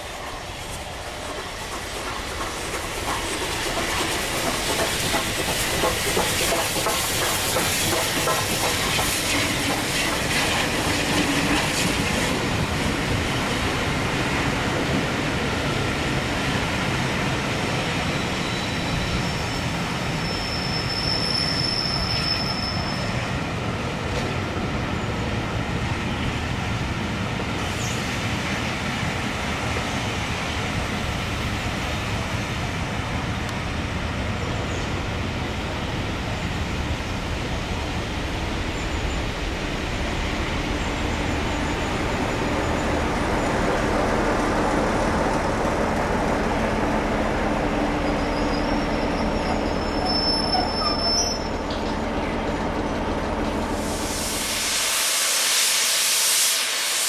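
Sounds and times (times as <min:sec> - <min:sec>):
high hiss of steam: 0:00.0 - 0:23.4, 0:53.5 - 0:57.0
coaches running over rails: 0:00.0 - 0:55.0
steam train rolling past: 0:00.0 - 0:57.0
wheel squeal: 0:18.1 - 0:23.2, 0:48.0 - 0:51.9.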